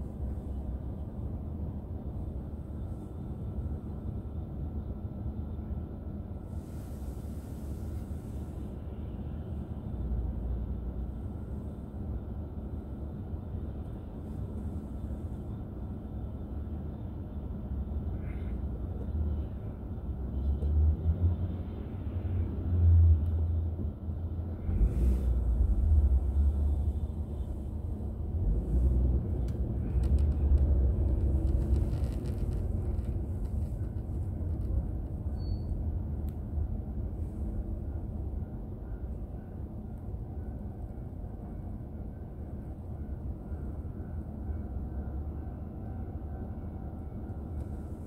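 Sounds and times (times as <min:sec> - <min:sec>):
car driving rumble: 0:24.2 - 0:39.3.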